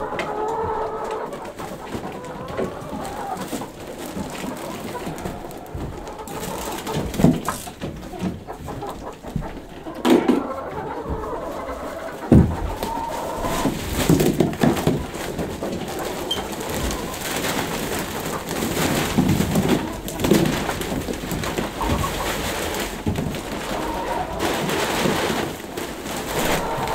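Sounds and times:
hens cooing: 0.0s - 26.9s
dull knocks: 12.2s - 13.0s.

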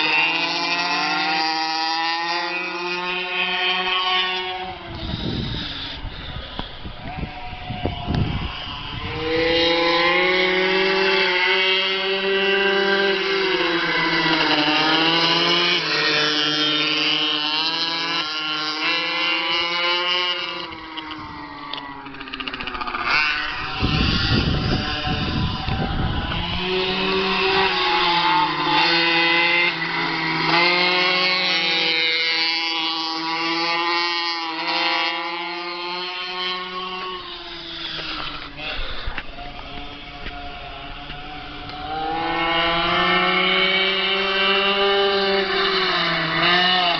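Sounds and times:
small two-stroke engines revving: 0.0s - 46.9s.

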